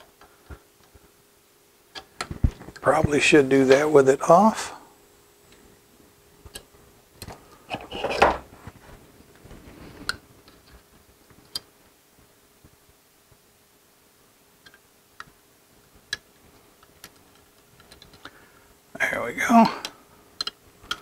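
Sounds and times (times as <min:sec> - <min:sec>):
faint steady hum: 0:00.0 - 0:21.0
hands clicking and rustling: 0:16.0 - 0:18.4, 0:19.7 - 0:21.0.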